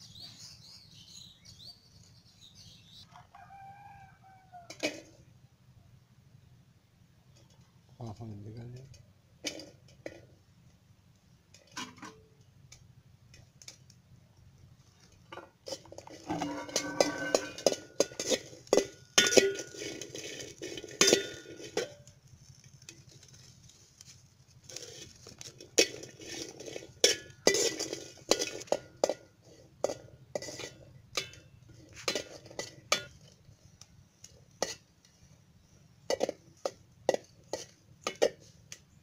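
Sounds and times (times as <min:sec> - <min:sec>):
metal spatula scraping pot: 0:15.0 - 0:22.1, 0:24.6 - 0:35.4, 0:36.1 - 0:38.8.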